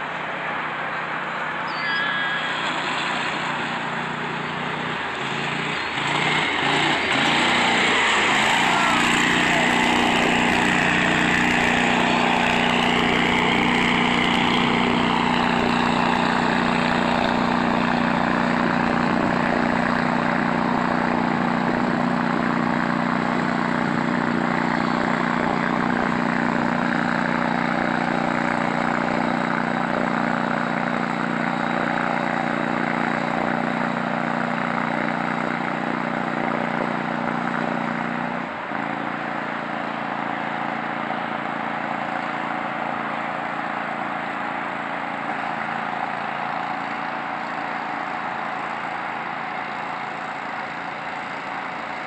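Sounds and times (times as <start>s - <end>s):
broad rushing noise: 0.0s - 52.0s
distant atv engine running: 0.0s - 52.0s.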